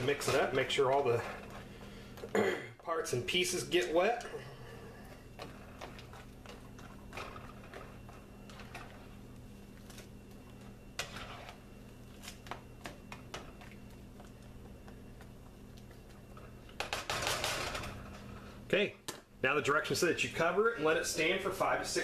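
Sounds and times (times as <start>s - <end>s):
spatula scraping skillet: 0.0s - 2.0s, 5.1s - 9.3s, 10.8s - 12.5s
steady low hum: 0.0s - 22.0s.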